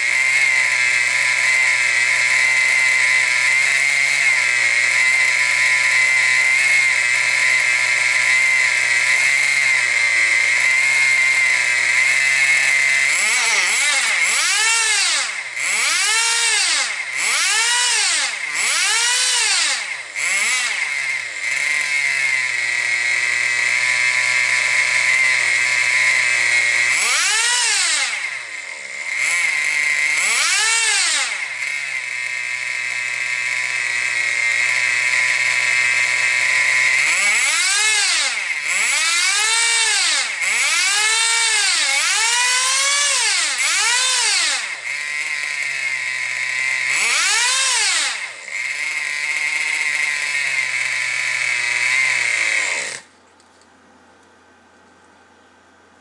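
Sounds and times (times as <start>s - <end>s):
nitro engine revving: 0.0s - 53.1s.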